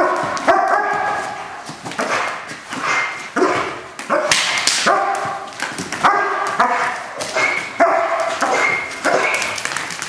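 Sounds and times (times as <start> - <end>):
dog barking: 0.0 - 1.4, 2.0 - 9.7
sharp cracks: 4.0 - 10.0.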